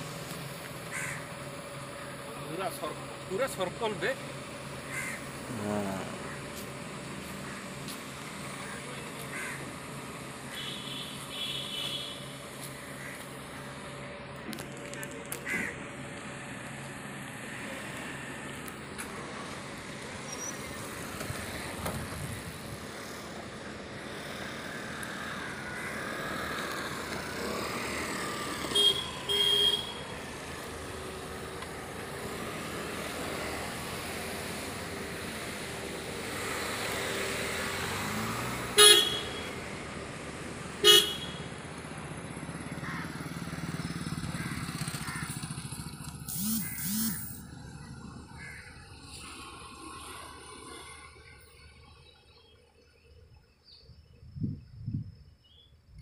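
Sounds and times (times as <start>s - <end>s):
road traffic: 0.0s - 56.0s
vehicle horn toots: 10.5s - 12.3s, 28.7s - 30.1s, 38.7s - 39.6s, 40.8s - 41.5s.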